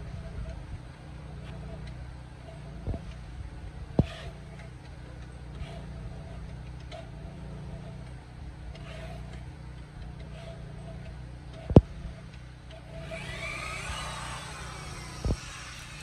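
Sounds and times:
electric drill boring into wood: 12.9 - 16.0.

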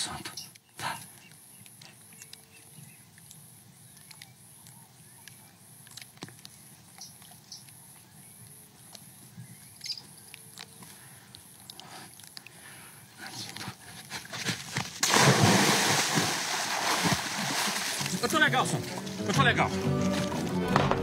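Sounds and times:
faint high-pitched insect chirp: 0.0 - 13.1
small ticks and clicks: 0.3 - 12.7.

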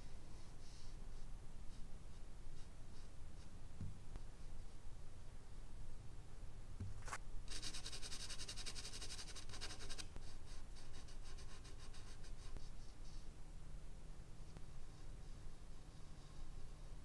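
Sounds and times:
charcoal pencil scratching on paper: 7.0 - 13.2.

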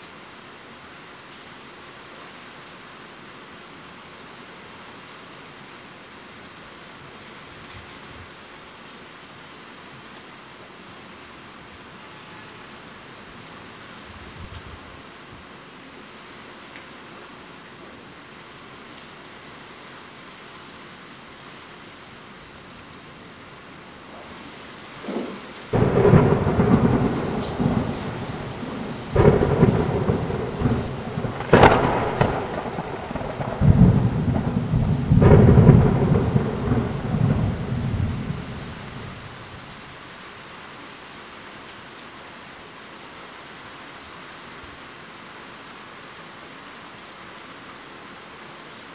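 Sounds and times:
steady rain: 0.0 - 48.9
rolling thunder with cracks: 24.2 - 39.4.

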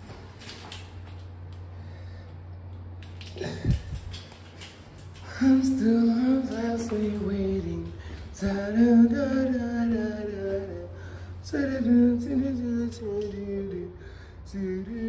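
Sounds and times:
steady low hum: 0.0 - 15.0
person singing slow pop melody: 5.2 - 15.0.

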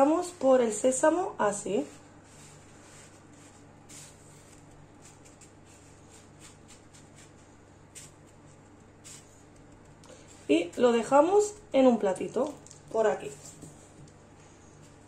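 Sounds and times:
steady low hum: 0.0 - 15.0
sesame seeds rustling and crunching: 10.0 - 13.4.

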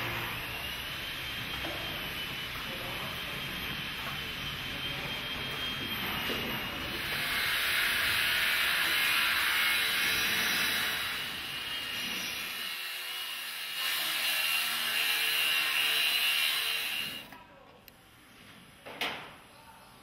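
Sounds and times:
angle grinder cutting steel: 6.5 - 17.3.

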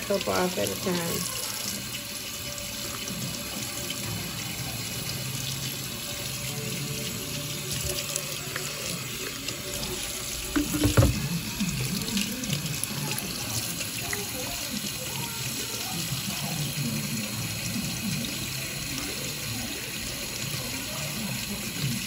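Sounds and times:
hands rinsing under water: 7.7 - 12.9
tap running into steel sink: 10.3 - 11.9
knock: 10.6 - 11.3.

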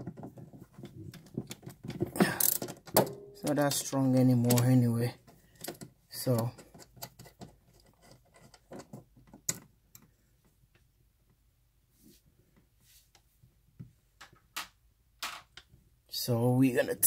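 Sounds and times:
faint handling clicks and rubbing: 3.4 - 11.4.

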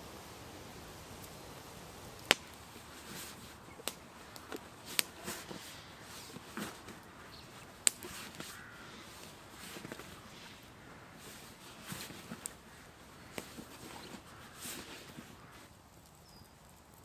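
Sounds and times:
campfire crackling: 0.0 - 17.0
low hiss: 0.0 - 17.0
sharp pops of fire: 0.0 - 17.0
soft rustles: 2.7 - 15.8.

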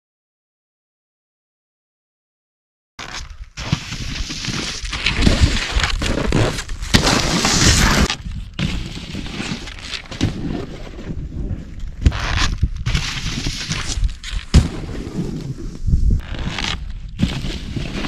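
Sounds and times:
snowboard scraping over snow: 3.6 - 18.0
wind rumbling on microphone: 10.2 - 18.0.

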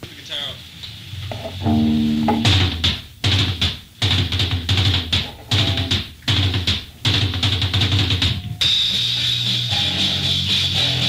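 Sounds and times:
rock band playing: 1.3 - 11.0.

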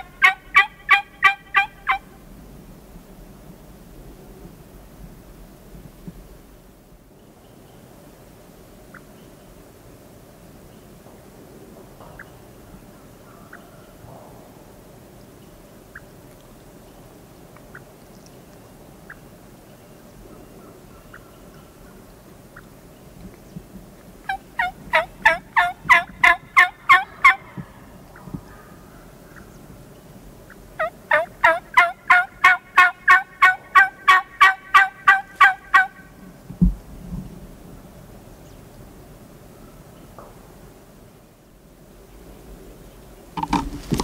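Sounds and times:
turkey yelping: 0.0 - 2.1, 24.3 - 27.7, 30.5 - 36.0.

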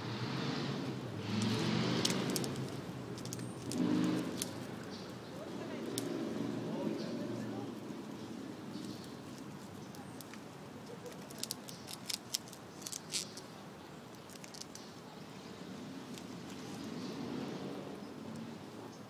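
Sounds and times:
squirrel gnawing crunching clicks: 8.7 - 13.5, 14.1 - 14.9.

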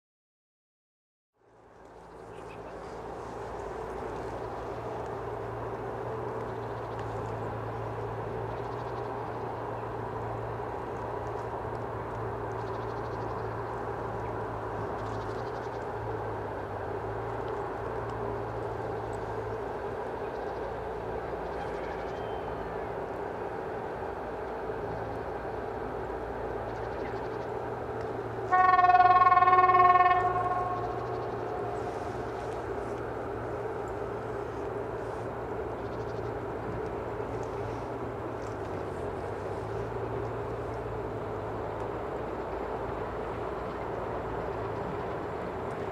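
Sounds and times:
diesel locomotive engine drone: 1.4 - 45.9
locomotive horn: 28.4 - 32.3.

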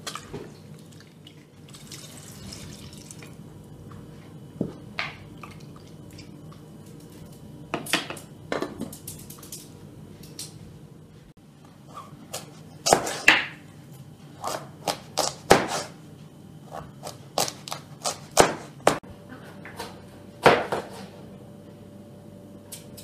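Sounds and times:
water pouring into a pot: 0.8 - 3.3.

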